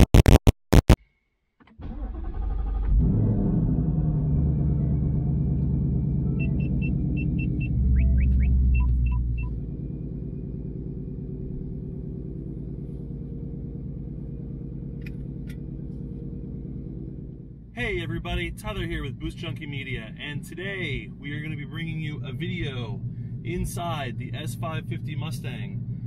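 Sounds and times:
car engine idling: 0:01.8 - 0:26.0
short electronic beeps: 0:06.3 - 0:09.5.

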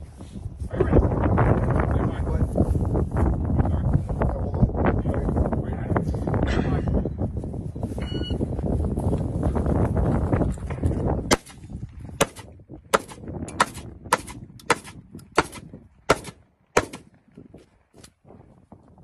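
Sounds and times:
rifle gunshots: 0:11.3 - 0:11.6, 0:12.2 - 0:17.2.

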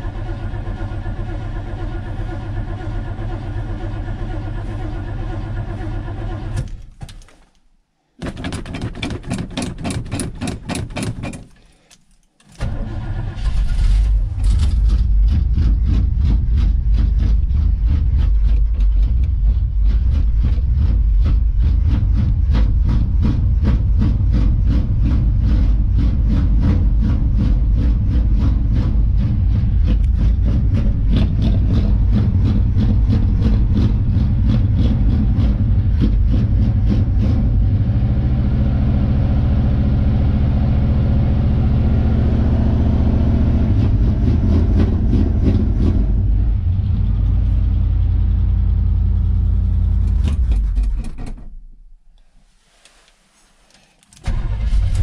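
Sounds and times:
starter cranking engine: 0:00.0 - 0:06.8, 0:12.4 - 0:37.6, 0:54.0 - 0:55.0
car engine running: 0:12.7 - 0:50.9.

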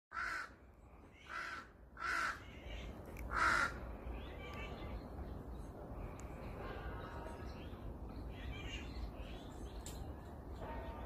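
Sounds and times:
crow cawing: 0:00.1 - 0:00.6, 0:01.2 - 0:02.6, 0:03.3 - 0:03.8.

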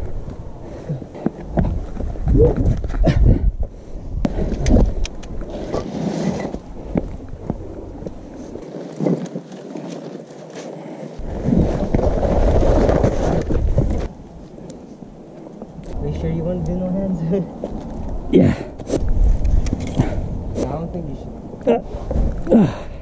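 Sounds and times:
wind rumbling on microphone: 0:00.0 - 0:23.0
scuffs and clicks on rock: 0:04.3 - 0:14.1.

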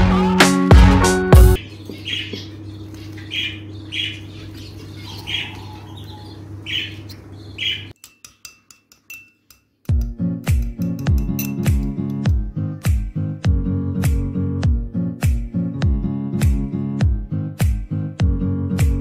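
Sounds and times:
music: 0:00.0 - 0:01.6, 0:09.9 - 0:19.0
steady low hum: 0:01.6 - 0:07.9
small bird chirping: 0:01.6 - 0:08.0.

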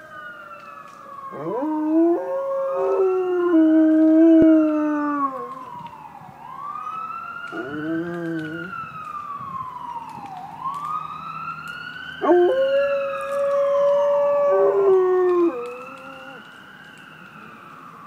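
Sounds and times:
siren rising and falling: 0:00.0 - 0:18.0
dog howling: 0:01.3 - 0:05.6, 0:07.5 - 0:08.7, 0:12.2 - 0:16.4.

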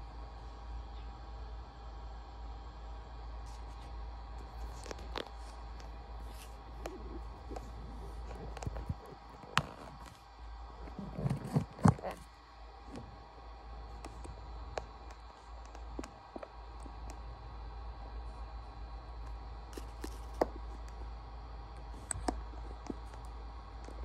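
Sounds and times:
steady low hum: 0:00.0 - 0:24.0
hand rubbing and knocking phone: 0:04.4 - 0:12.3.

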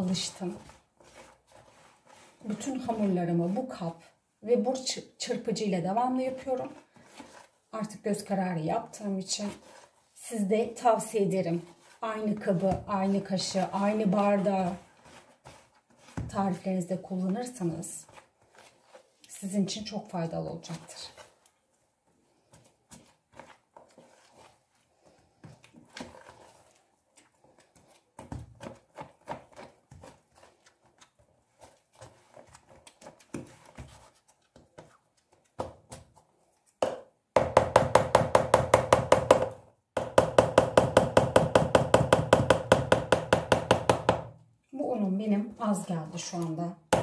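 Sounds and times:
whisk tapping and scraping bowl: 0:11.5 - 0:16.6, 0:25.5 - 0:30.9.

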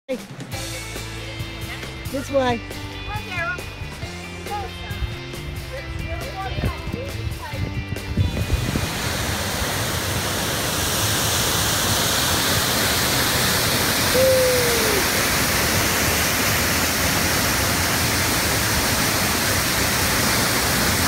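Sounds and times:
waterfall rushing: 0:08.2 - 0:21.0.

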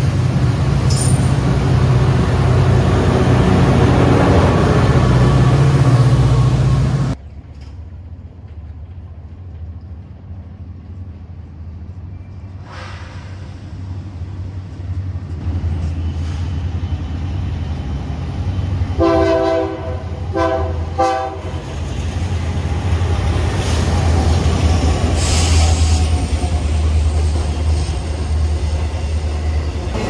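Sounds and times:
diesel locomotive rumble: 0:00.0 - 0:30.0
train wheels on rails: 0:00.0 - 0:30.0
train horn blasts: 0:19.0 - 0:21.6.

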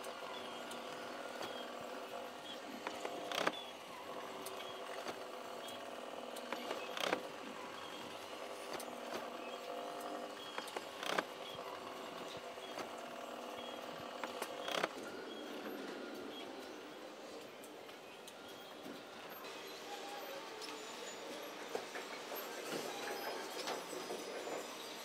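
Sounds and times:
motor hum: 0:00.0 - 0:19.4
mechanism creaking: 0:02.4 - 0:03.7, 0:04.4 - 0:17.5.

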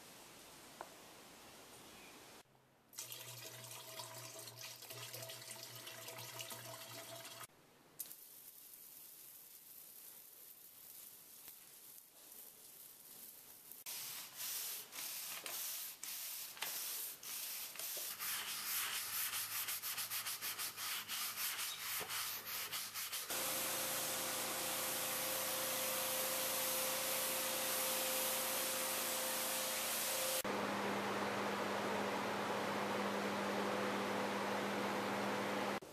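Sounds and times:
water spray hissing on concrete: 0:08.0 - 0:19.0, 0:20.4 - 0:30.4
brush scrubbing concrete: 0:10.5 - 0:29.8
pressure washer machine tone: 0:23.3 - 0:35.8.

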